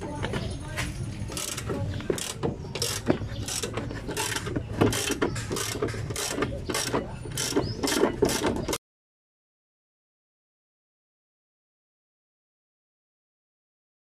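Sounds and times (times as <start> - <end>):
ratchet wrench clicking: 1.3 - 8.6.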